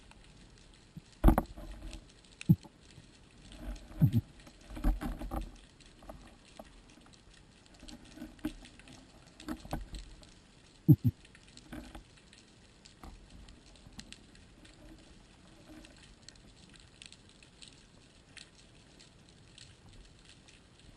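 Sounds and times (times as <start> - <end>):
crackle bursts: 0.0 - 20.9
underwater clicks and knocks: 0.9 - 17.1.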